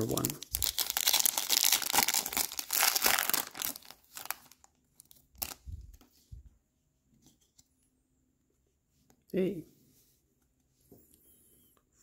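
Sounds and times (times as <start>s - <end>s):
foil wrapper tearing and crinkling: 0.0s - 5.6s.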